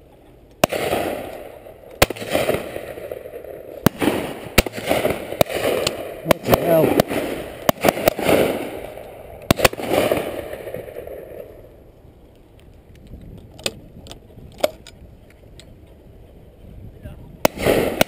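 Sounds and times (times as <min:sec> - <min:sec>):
faint distant shotgun shots: 0:00.6 - 0:11.6, 0:17.4 - 0:18.0
shotgun shots echoing: 0:00.6 - 0:11.6, 0:17.4 - 0:18.0.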